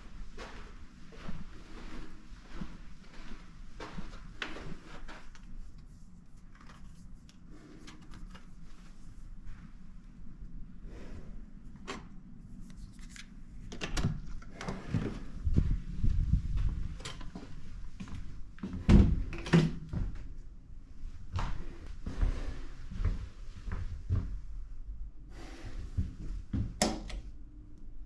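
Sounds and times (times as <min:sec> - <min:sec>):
movement on carpet: 0:00.0 - 0:07.9, 0:21.0 - 0:24.4.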